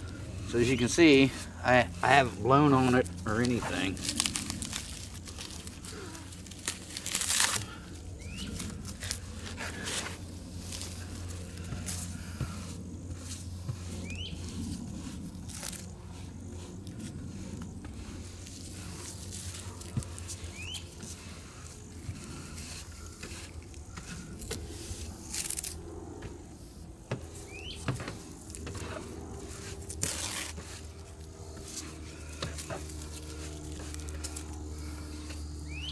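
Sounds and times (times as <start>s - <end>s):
smouldering kindling crackling: 0.0s - 10.0s
smoldering kindling hissing and crackling: 0.0s - 35.9s
rustle: 2.8s - 25.8s, 26.6s - 34.5s.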